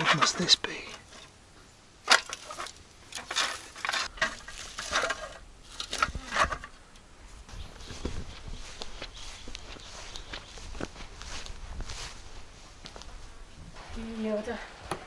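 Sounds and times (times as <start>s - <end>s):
metal tool clanking and scraping: 0.0s - 1.4s, 2.1s - 6.8s.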